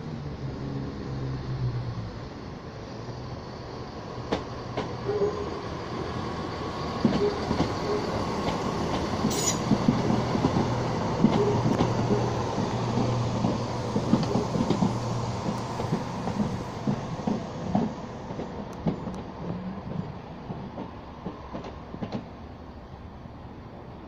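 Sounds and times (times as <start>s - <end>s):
train engine hum: 0.0s - 24.0s
train wheels clicking over rail joints: 6.7s - 22.4s.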